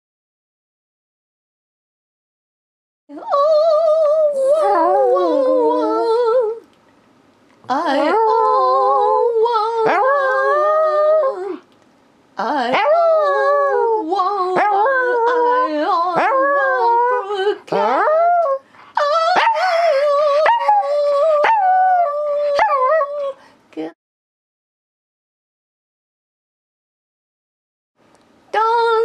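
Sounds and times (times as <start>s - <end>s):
person singing a tune: 3.1s - 6.6s, 7.7s - 11.6s, 12.4s - 23.4s, 28.5s - 29.0s
small dog howling: 8.0s - 11.6s, 12.7s - 23.3s.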